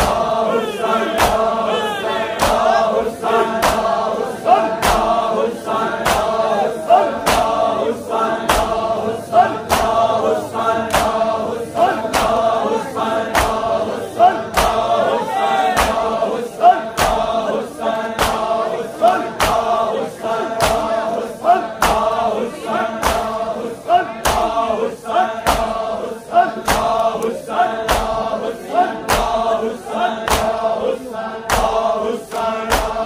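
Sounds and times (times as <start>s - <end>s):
crowd of men chanting: 0.0s - 33.0s.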